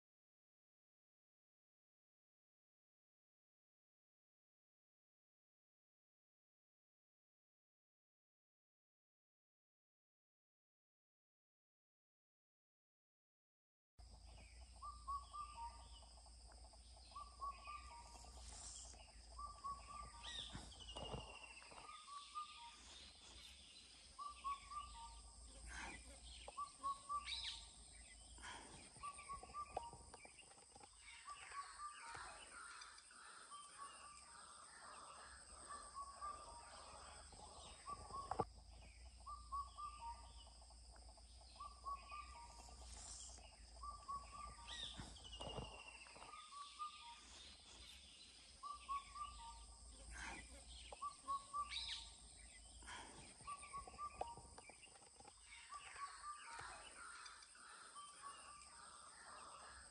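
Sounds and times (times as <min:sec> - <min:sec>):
other birds calling: 0:14.1 - 0:59.9.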